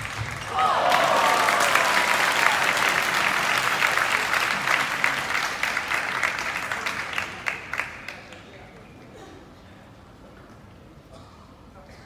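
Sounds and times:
crowd applauding: 0:00.0 - 0:08.5.

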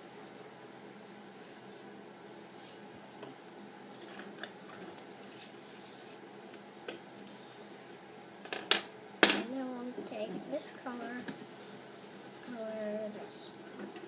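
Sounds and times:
pencil scratching on paper: 0:11.0 - 0:13.8.

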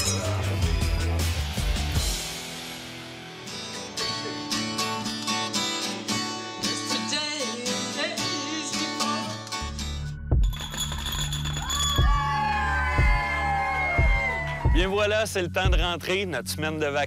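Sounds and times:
bass guitar: 0:00.0 - 0:06.8
acoustic guitar strummed: 0:02.2 - 0:10.0
woman singing: 0:06.8 - 0:09.4.

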